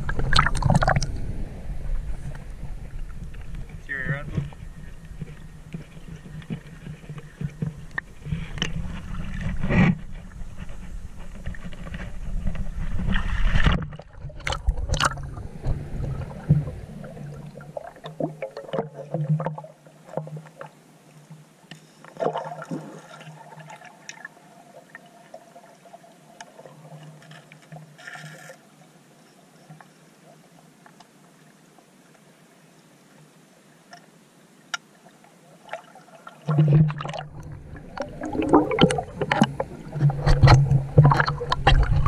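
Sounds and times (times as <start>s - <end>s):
heavy low rumble: 0.0s - 5.2s
muffled water gurgling and sloshing: 0.0s - 28.0s, 35.1s - 42.0s.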